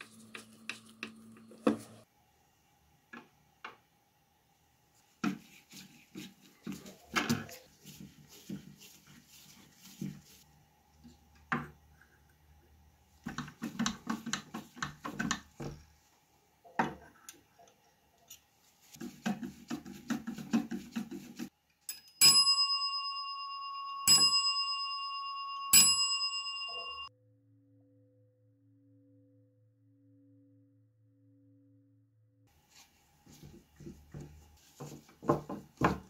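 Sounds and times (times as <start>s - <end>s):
telephone bells ringing: 22.2s - 27.1s.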